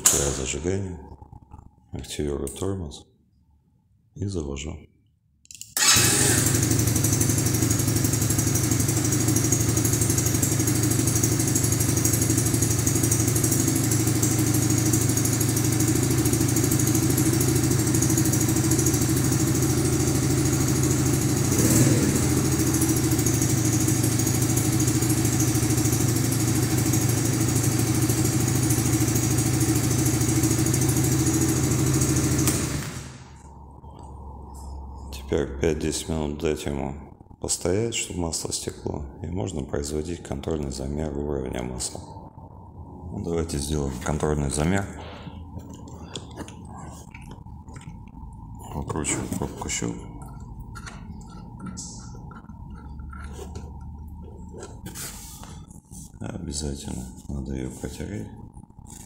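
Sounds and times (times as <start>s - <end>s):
small engine idling: 5.8s - 33.5s, 48.6s - 55.9s.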